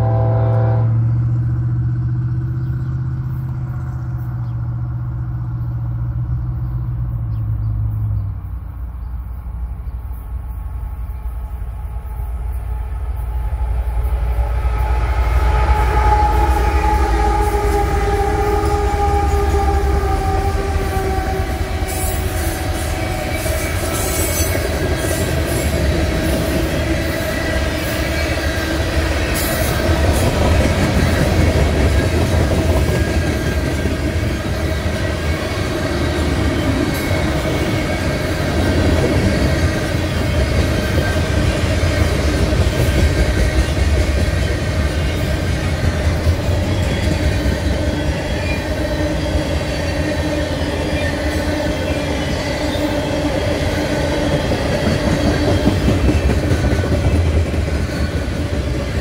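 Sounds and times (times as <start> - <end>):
train horn chord: 0.0 - 1.3, 12.2 - 24.6
diesel locomotive engines: 0.0 - 59.0.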